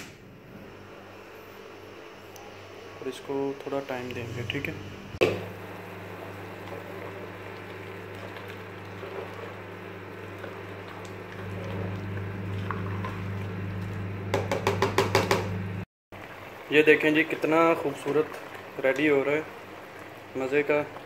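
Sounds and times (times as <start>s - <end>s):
water boiling in a pot: 5.5s - 21.0s
spatula stirring pot: 6.4s - 15.3s
spatula striking pot: 14.3s - 15.4s.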